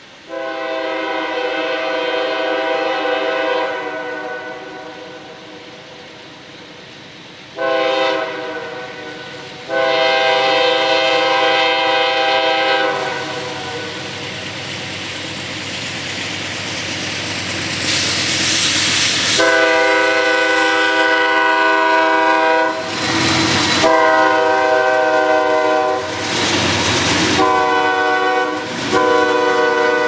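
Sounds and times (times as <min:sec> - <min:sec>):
locomotive horn blasts: 0:00.3 - 0:05.1, 0:07.6 - 0:14.2, 0:19.3 - 0:22.9, 0:23.8 - 0:26.1, 0:27.4 - 0:30.0
train clattering on rails: 0:09.2 - 0:30.0.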